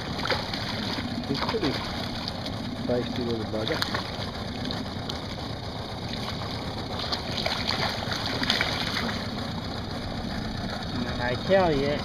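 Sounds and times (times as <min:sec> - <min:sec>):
fish splashing at water surface: 0:00.0 - 0:02.9, 0:03.6 - 0:10.0
outboard motor running: 0:00.0 - 0:12.0
water and wind noise: 0:00.0 - 0:12.0.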